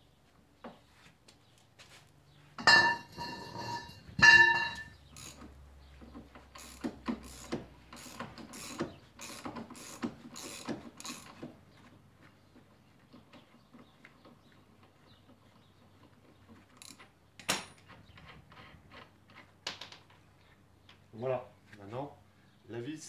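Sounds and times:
ringing metallic clanks: 2.6s - 5.0s
ratchet wrench clicking: 5.2s - 5.4s, 6.5s - 11.4s.

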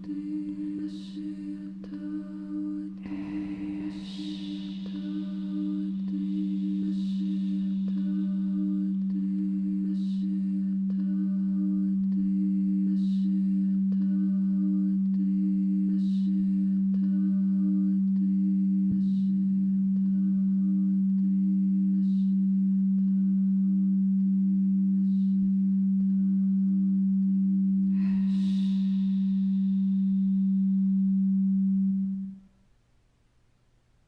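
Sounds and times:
pulsing higher tone: 0.0s - 13.2s
humming drone of tones: 0.0s - 32.4s
breath close to microphone: 3.0s - 8.4s, 27.9s - 30.4s.

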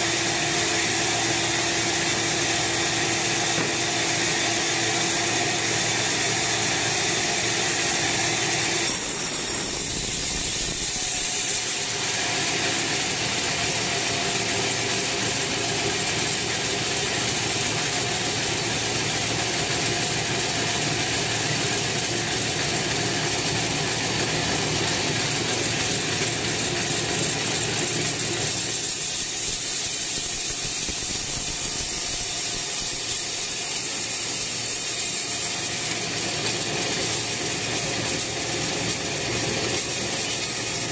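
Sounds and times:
band saw cutting log: 0.0s - 40.9s.

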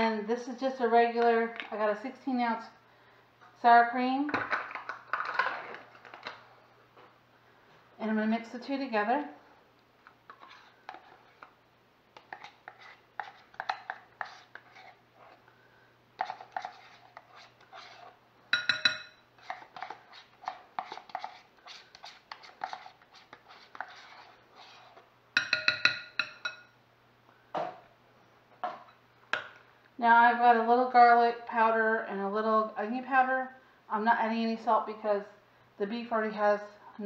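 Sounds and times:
spoon scraping plastic tub: 10.3s - 11.5s, 12.2s - 15.4s, 16.2s - 18.8s, 19.4s - 25.1s
spoon tapping against bowl: 18.5s - 19.2s, 25.4s - 26.7s.

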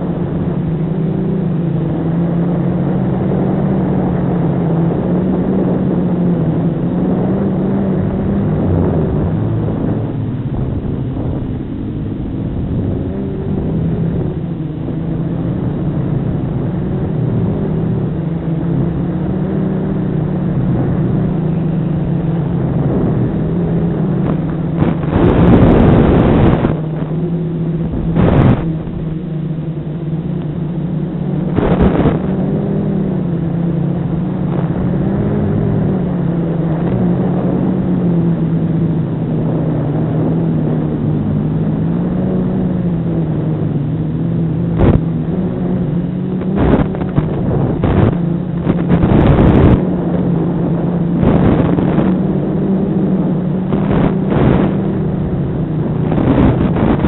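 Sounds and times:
loud rushes of noise: 21.1s - 30.3s, 31.4s - 33.0s.

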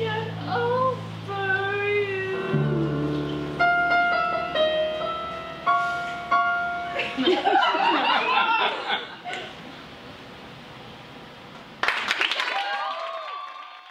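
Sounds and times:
piano chords: 0.0s - 8.2s
audience cheering and laughing: 3.9s - 4.8s, 6.9s - 9.6s.

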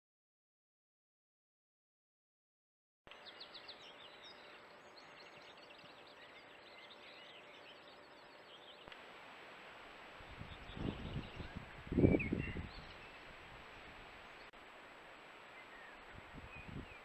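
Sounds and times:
small birds chirping and trilling: 3.1s - 9.0s, 10.3s - 13.3s, 15.5s - 17.0s
microphone hiss: 3.1s - 17.0s.

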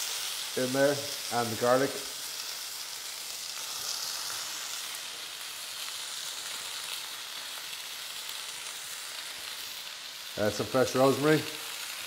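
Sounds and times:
chicken and vegetables sizzling: 0.0s - 12.0s.

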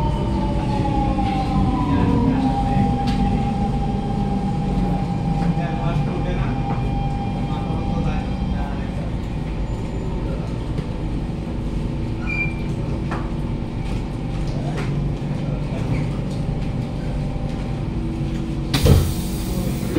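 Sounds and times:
train equipment hum: 0.0s - 19.9s
hissing air burst: 18.8s - 19.9s.

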